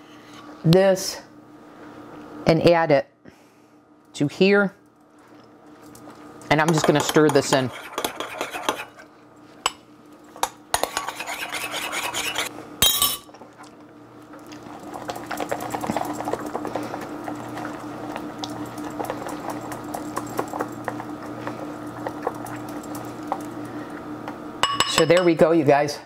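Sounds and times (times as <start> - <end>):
spatula scraping a ceramic bowl: 6.7 - 9.1, 10.8 - 12.5.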